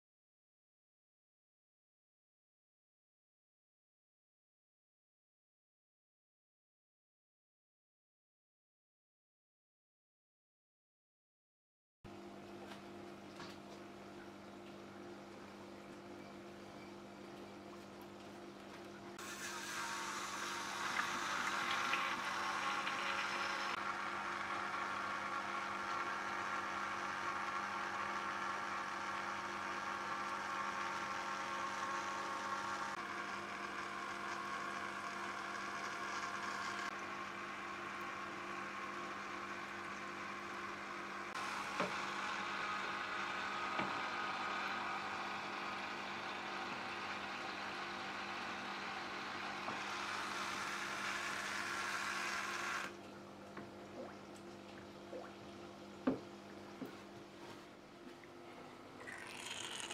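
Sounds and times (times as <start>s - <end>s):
pump motor hum: 12.5s - 59.9s.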